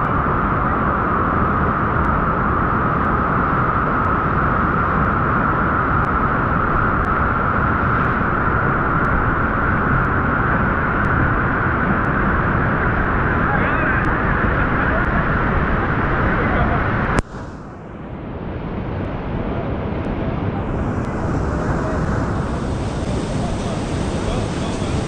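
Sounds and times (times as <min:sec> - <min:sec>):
rushing water: 0:18.6 - 0:25.0.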